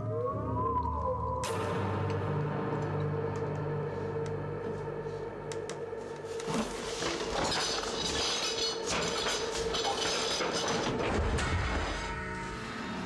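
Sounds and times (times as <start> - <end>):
film score drone: 0.0 - 13.0.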